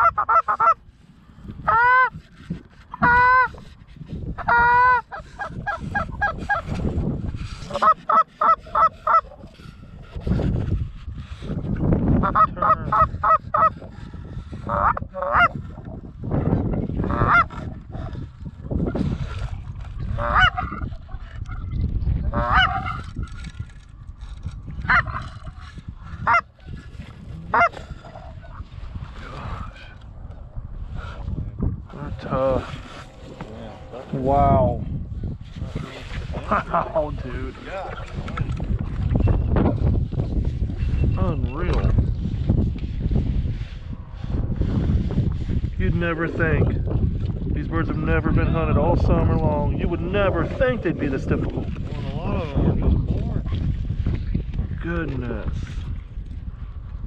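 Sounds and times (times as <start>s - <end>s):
goose honking: 0.0s - 0.8s, 1.7s - 2.1s, 2.9s - 3.6s, 4.4s - 6.4s, 7.7s - 9.3s, 14.7s - 15.6s, 20.2s - 20.8s, 22.3s - 23.0s, 24.9s - 25.2s, 27.5s - 27.7s.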